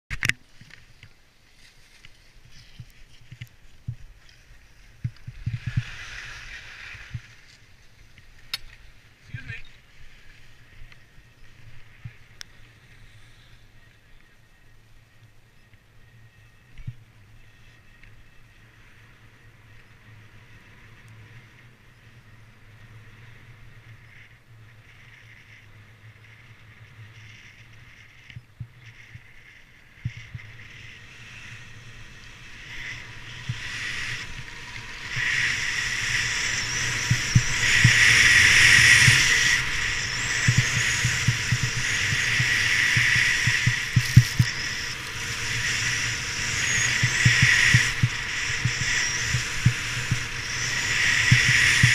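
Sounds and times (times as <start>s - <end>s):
wind buffeting camera: 1.9s - 12.7s, 26.0s - 51.9s
skis hissing on snow: 4.4s - 7.8s, 30.7s - 51.9s.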